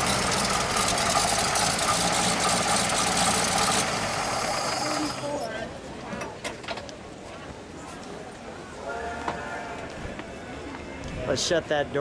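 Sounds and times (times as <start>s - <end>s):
car engine idling: 0.0s - 5.4s.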